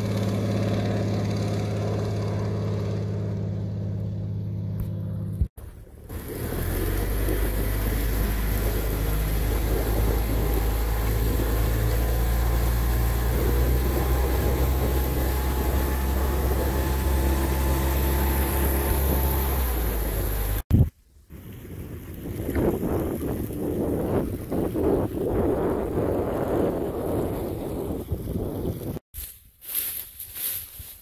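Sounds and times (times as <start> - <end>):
outboard motor running: 0.0 - 20.7
rushing boat wake: 5.6 - 29.0.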